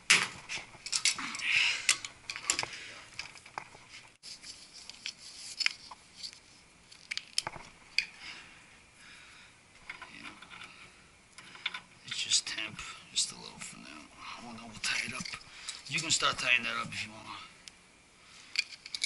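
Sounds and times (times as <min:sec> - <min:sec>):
tape roll rustle: 0:03.3 - 0:07.8
metal fittings clicking and clinking: 0:18.5 - 0:19.0.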